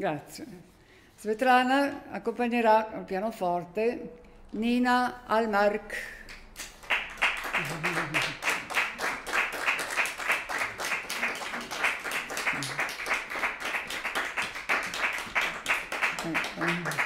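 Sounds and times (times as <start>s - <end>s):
audience applauding: 6.7s - 17.0s.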